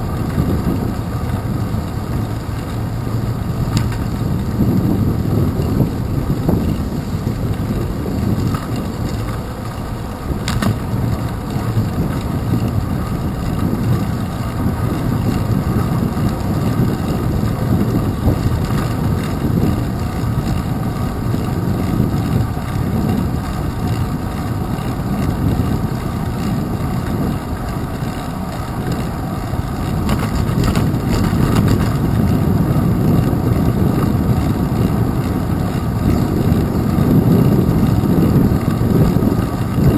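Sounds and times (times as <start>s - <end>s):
bicycle road vibration: 0.0s - 39.9s
wind buffeting: 0.0s - 39.9s
clicks and rattles: 7.6s - 12.7s, 29.8s - 32.1s.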